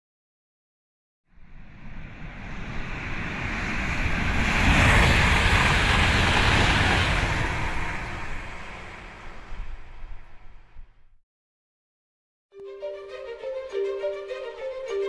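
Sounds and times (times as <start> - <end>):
rushing whoosh: 1.3 - 11.0.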